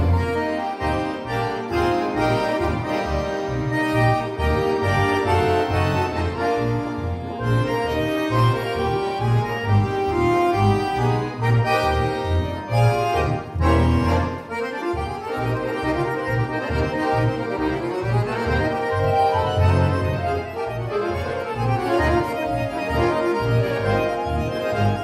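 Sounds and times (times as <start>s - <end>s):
accordion ensemble playing: 0.0s - 25.0s.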